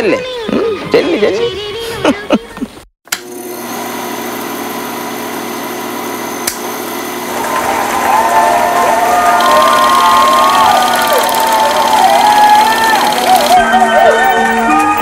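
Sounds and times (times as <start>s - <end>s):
film projector whirring: 3.1s - 13.8s
projector click: 6.4s - 6.7s
crowd cheering and whistling: 7.3s - 15.0s.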